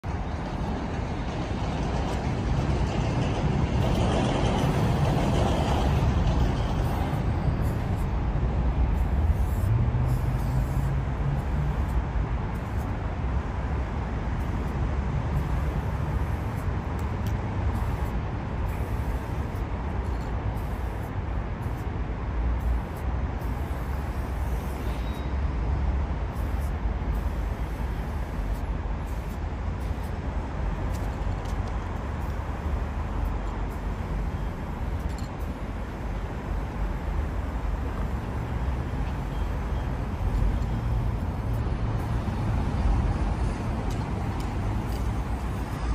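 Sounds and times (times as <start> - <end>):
road traffic rumbling: 0.0 - 45.9.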